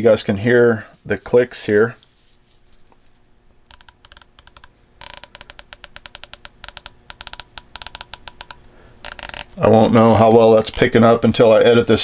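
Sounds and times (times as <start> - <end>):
scope turret clicking: 3.7 - 9.6.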